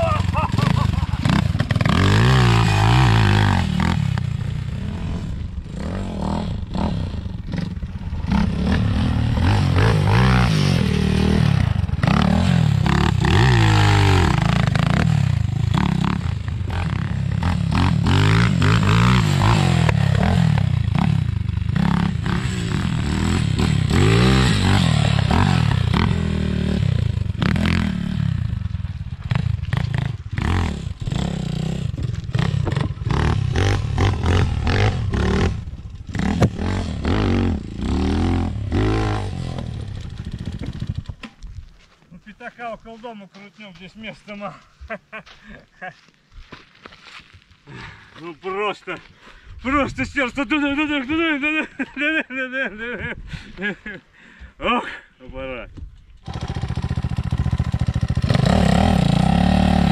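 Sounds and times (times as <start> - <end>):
dirt bike engine revving: 0.0 - 41.3, 56.2 - 59.9.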